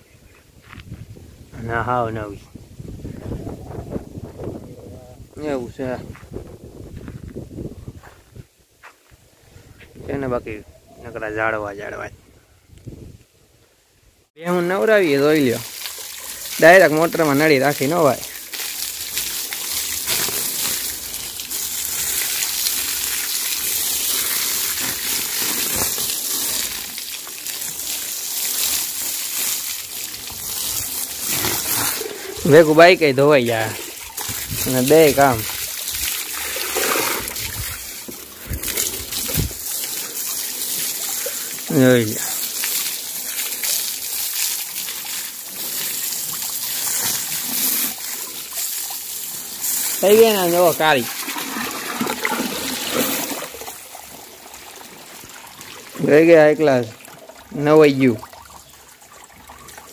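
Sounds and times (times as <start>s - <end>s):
hose water jet spraying: 14.5s - 54.2s
water splattering on mud: 14.7s - 54.2s.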